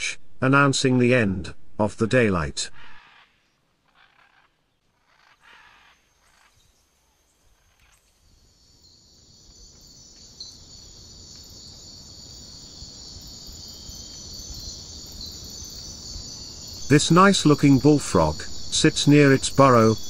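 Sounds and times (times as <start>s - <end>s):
faint calls: 2.6s - 6.8s, 12.7s - 20.0s
crickets trilling: 5.1s - 20.0s.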